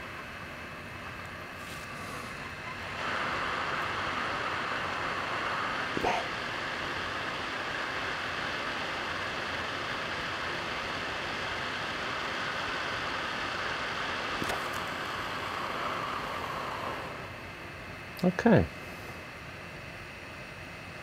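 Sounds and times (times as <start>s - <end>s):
hot air blower hissing: 0.0s - 20.3s.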